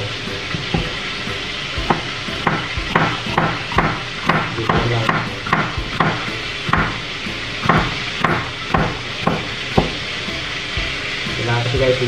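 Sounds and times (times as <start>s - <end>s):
knife chopping on cutting board: 1.8s - 7.0s, 7.6s - 10.0s.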